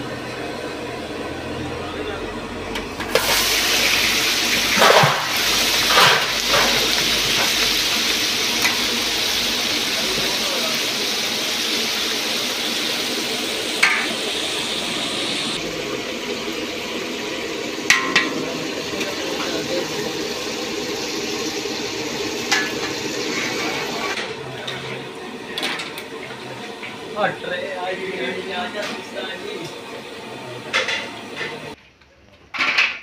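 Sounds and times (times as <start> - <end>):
fish sizzling in hot oil: 3.1 - 24.2.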